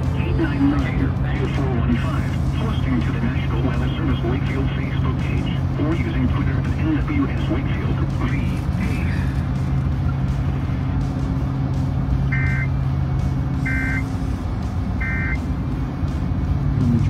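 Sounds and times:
car road and engine noise: 0.0 - 17.0
short electronic beeps: 12.3 - 12.8, 13.6 - 14.1, 15.0 - 15.4.

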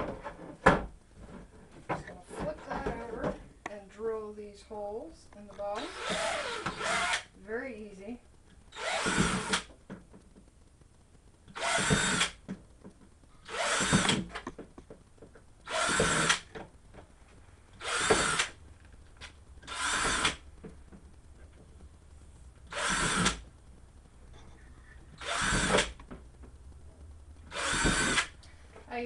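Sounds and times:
power drill whining: 5.8 - 7.3, 8.7 - 9.7, 11.5 - 12.4, 13.4 - 14.4, 15.7 - 16.5, 17.8 - 18.6, 19.6 - 20.4, 22.7 - 23.4, 25.2 - 26.0, 27.5 - 28.3.

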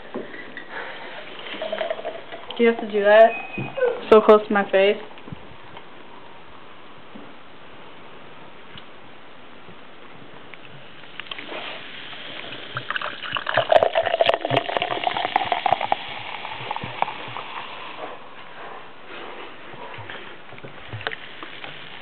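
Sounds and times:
drink pouring into a glass: 1.2 - 3.0, 12.4 - 17.9.

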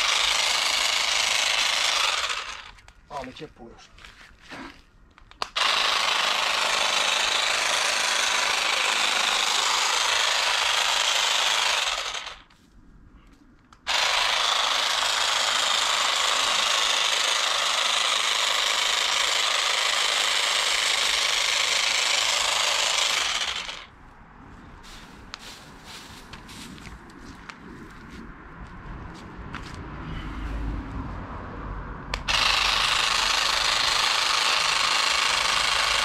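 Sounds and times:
power hedge trimmer running: 0.0 - 2.8, 5.5 - 12.4, 13.9 - 23.9, 32.2 - 36.0.

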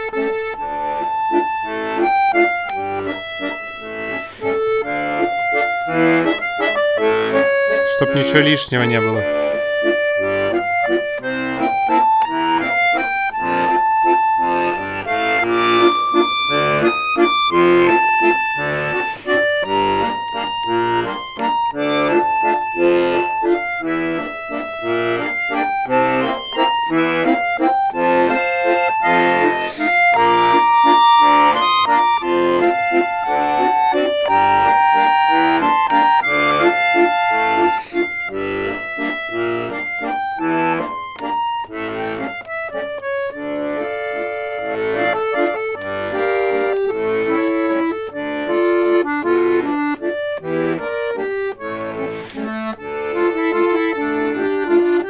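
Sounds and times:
button accordion melody: 0.0 - 55.0.

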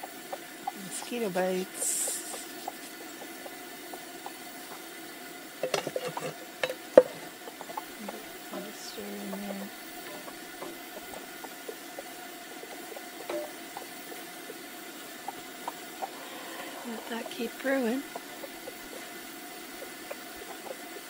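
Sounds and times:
faint sizzle: 0.0 - 21.0
spoon knocking on pan: 5.6 - 8.2, 9.3 - 14.6
wooden spoon scraping skillet: 5.6 - 14.7.

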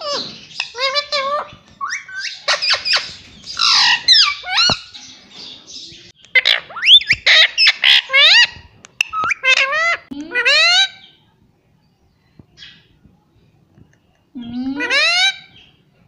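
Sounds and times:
parrot squawking and whistling: 6.4 - 11.0.

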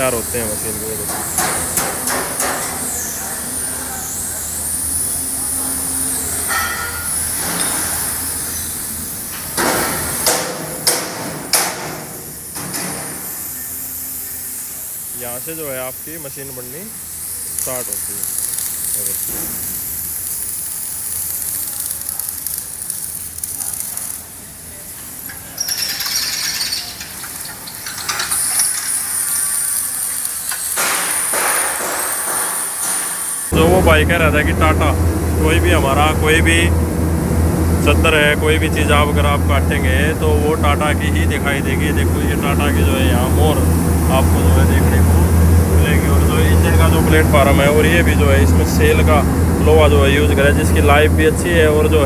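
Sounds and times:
steady high-pitched whine: 0.0 - 9.3, 33.4 - 52.0
workshop background noise: 0.0 - 52.0
steel being struck: 6.2 - 8.1, 25.2 - 33.3
steel parts clinking: 17.4 - 33.2.

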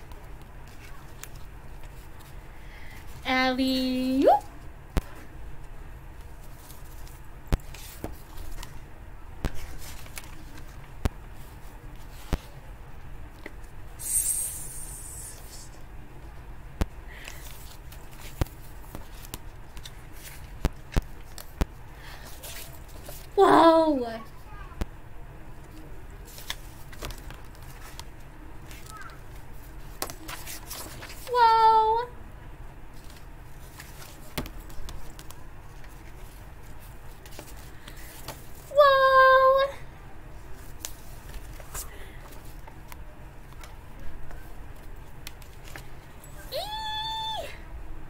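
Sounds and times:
faint steady background noise: 0.0 - 48.0
low room hum: 0.0 - 48.0
book pages turning: 0.1 - 2.4, 6.2 - 8.8, 9.5 - 12.6, 17.2 - 21.6, 26.2 - 31.3, 32.9 - 38.7, 40.5 - 46.0
paper rustling: 6.2 - 8.8, 9.5 - 12.6, 17.2 - 21.6, 26.2 - 31.3, 32.9 - 38.7, 40.4 - 46.1.

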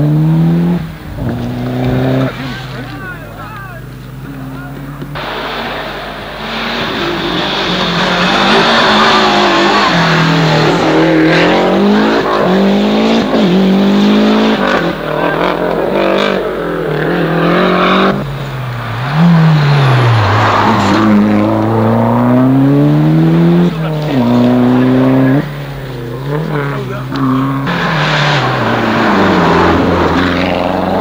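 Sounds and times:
rally car engines revving: 0.0 - 31.0.

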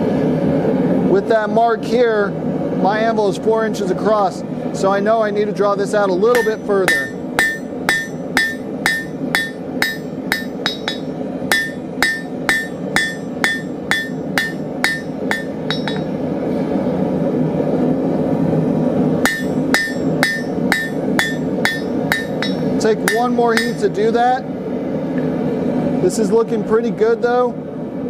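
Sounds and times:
hammer ringing on anvil: 6.3 - 16.2, 19.3 - 23.9.

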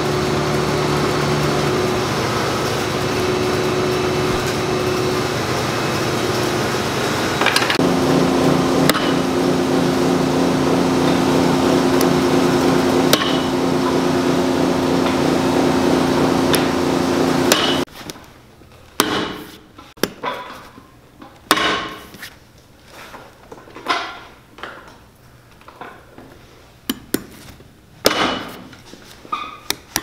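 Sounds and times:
machine humming: 0.0 - 17.9.

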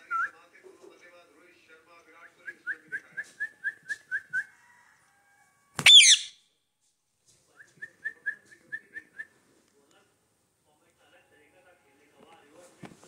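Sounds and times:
parakeet harsh screech: 5.8 - 6.4
parakeet whistled notes: 5.8 - 6.4.

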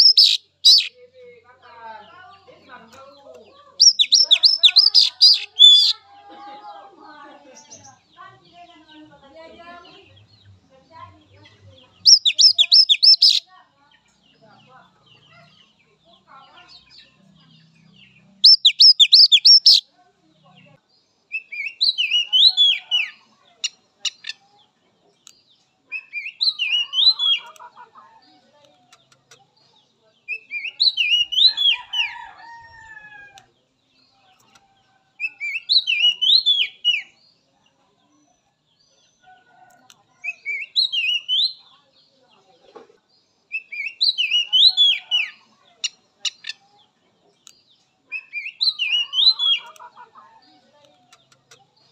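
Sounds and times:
bird singing whistled notes: 0.0 - 0.9, 3.8 - 5.9, 12.0 - 13.4, 18.4 - 19.8, 35.2 - 37.1, 40.3 - 41.6.

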